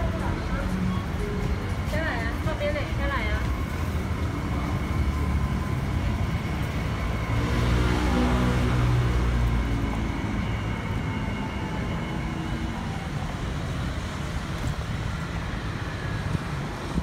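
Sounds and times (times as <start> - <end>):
street traffic: 0.0 - 17.0
vehicle engine hum: 0.0 - 17.0
wind buffeting microphone: 11.6 - 17.0.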